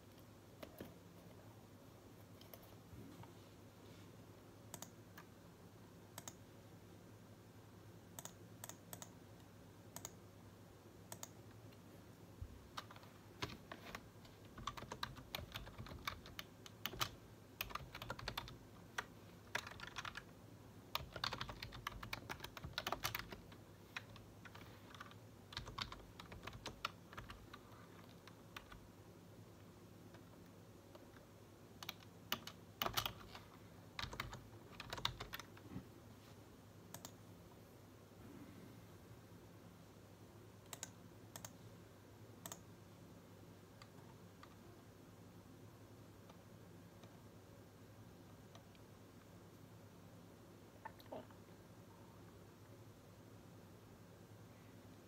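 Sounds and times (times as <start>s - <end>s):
faint steady low hum: 0.0s - 55.0s
typing on computer keyboard: 12.7s - 20.3s, 20.9s - 28.8s, 31.8s - 33.4s, 34.0s - 35.6s, 40.7s - 41.6s.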